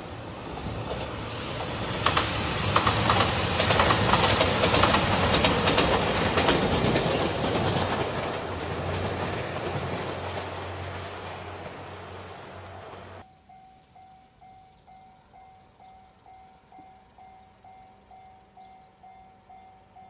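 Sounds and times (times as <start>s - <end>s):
train passing: 0.0s - 20.0s
train wheels clicking over rail joints: 0.5s - 13.2s.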